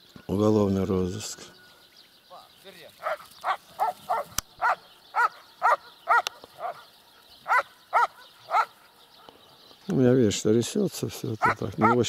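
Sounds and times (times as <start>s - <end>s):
dog barking: 3.0s - 9.4s, 11.4s - 12.0s.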